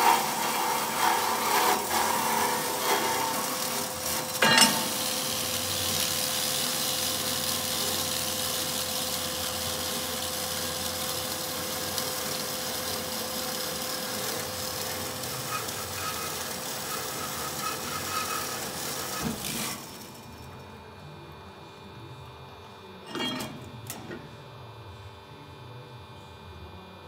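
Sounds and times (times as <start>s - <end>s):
band saw running: 0.0s - 20.6s.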